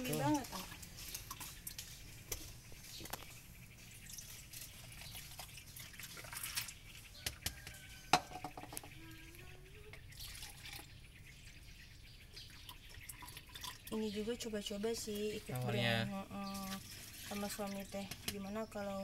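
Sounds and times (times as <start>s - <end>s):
milk pouring over ice: 4.0s - 6.9s.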